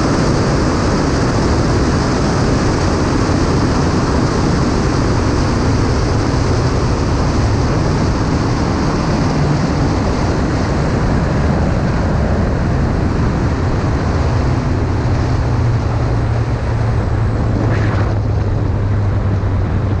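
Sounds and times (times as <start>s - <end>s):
race car engine: 0.0s - 20.0s
wind noise on microphone: 0.0s - 20.0s.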